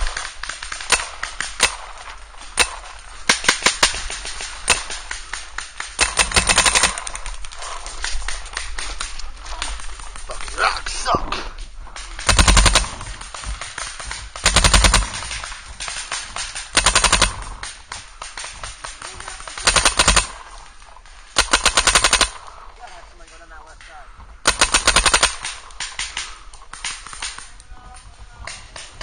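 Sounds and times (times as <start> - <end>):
paintball marker firing bursts: 0.0 - 7.3, 12.0 - 20.5, 21.3 - 22.5, 24.4 - 27.5
distant paintball shots: 0.0 - 10.6, 12.0 - 22.6, 24.4 - 27.6.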